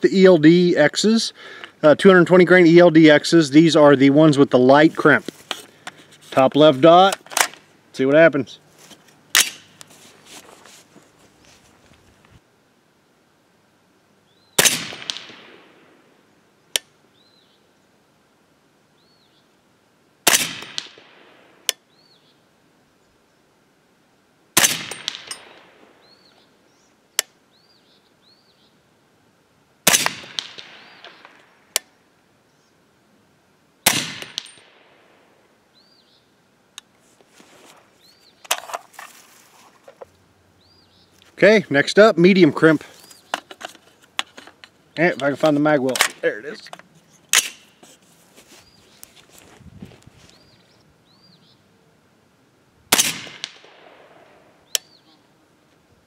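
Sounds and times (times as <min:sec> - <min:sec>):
suppressed gunshots: 0:09.3 - 0:09.8, 0:14.6 - 0:16.1, 0:20.2 - 0:21.7, 0:24.6 - 0:26.0, 0:29.8 - 0:31.5, 0:33.8 - 0:35.2, 0:47.3 - 0:47.7, 0:52.9 - 0:54.5.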